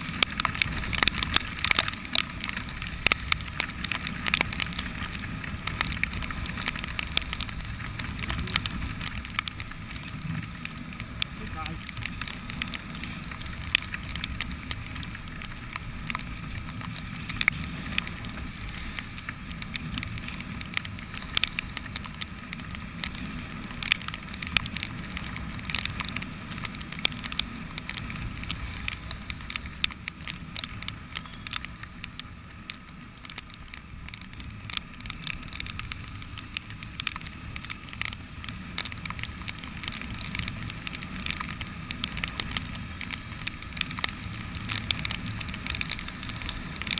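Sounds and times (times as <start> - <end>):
motorcycle engine rumble: 0.0 - 46.9
raindrops striking camera: 0.0 - 46.9.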